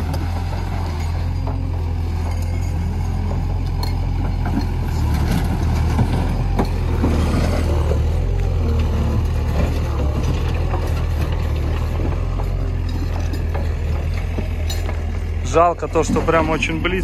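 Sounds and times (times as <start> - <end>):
diesel engine running under load: 0.0 - 17.0
rubble chunks knocking and clattering: 3.9 - 17.0.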